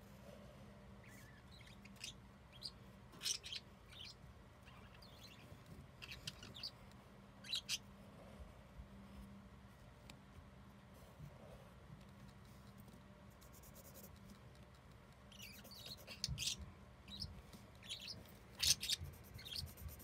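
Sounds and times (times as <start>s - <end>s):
faint steady low hum: 0.0s - 20.0s
pencil strokes scratching on paper: 12.4s - 14.2s, 18.9s - 20.0s.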